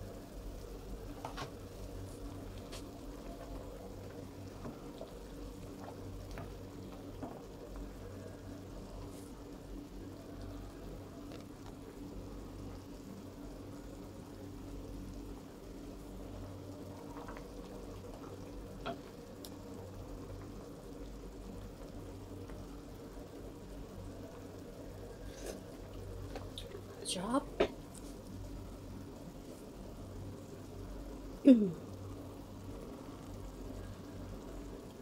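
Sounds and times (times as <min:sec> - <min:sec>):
low steady hum: 0:00.0 - 0:35.0
broth bubbling softly: 0:00.2 - 0:27.0.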